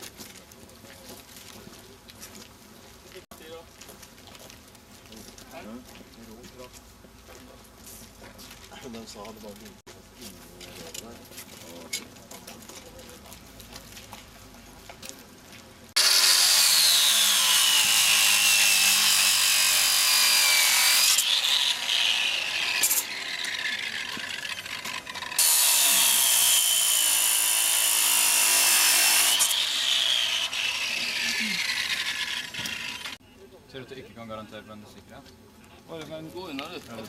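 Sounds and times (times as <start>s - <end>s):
angle grinder cutting metal: 16.0s - 33.2s.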